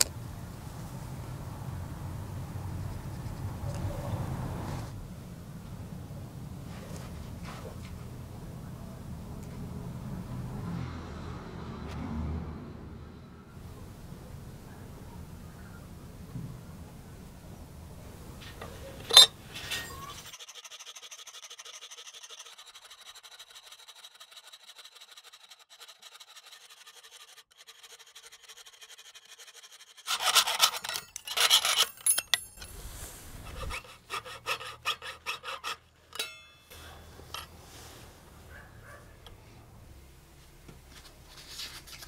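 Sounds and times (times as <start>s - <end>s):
saw cutting thin metal sheet: 19.0s - 36.6s.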